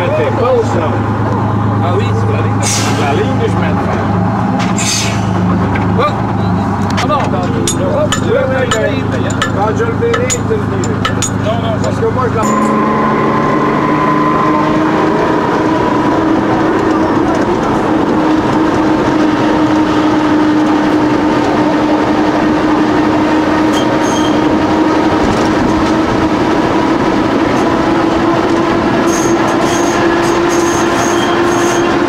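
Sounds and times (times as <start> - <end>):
tram motor hum: 0.0 - 32.0
wheels rumbling on rails: 0.0 - 32.0
high squeaks: 12.4 - 14.9, 23.7 - 24.5, 29.0 - 32.0.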